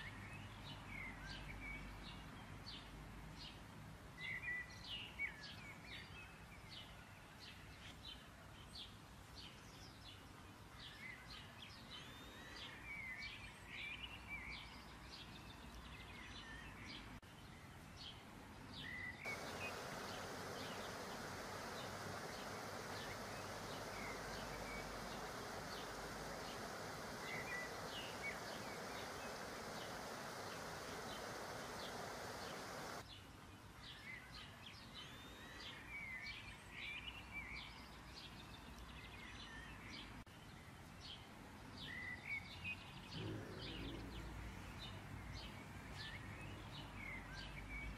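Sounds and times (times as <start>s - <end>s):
small birds chirping: 4.2s - 47.9s
dough deep-frying in oil: 19.3s - 33.0s.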